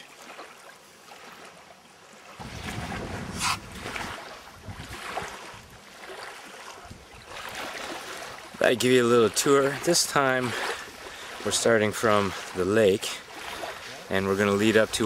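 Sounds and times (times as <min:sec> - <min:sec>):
lake water washing: 0:00.0 - 0:15.0
wind buffeting microphone: 0:02.4 - 0:05.9.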